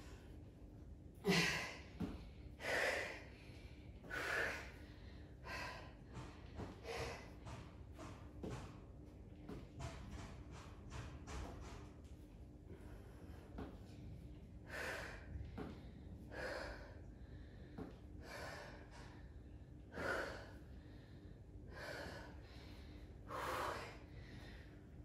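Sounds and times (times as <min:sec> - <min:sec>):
woman breathing hard: 0:01.2 - 0:07.5, 0:14.6 - 0:25.0.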